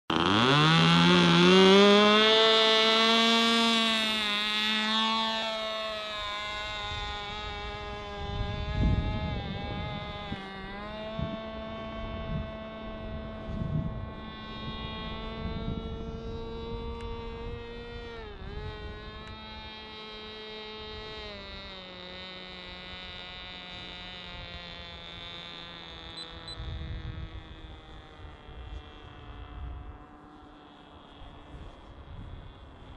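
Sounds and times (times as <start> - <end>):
model plane motor buzzing whine: 0.1 - 32.9
wind buffeting microphone: 6.1 - 20.0, 26.4 - 30.0, 31.2 - 32.9.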